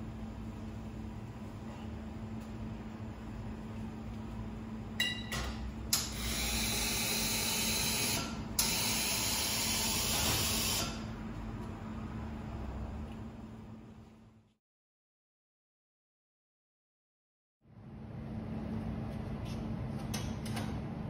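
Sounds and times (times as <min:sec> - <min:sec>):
steady low hum: 0:00.0 - 0:07.5, 0:10.8 - 0:14.6.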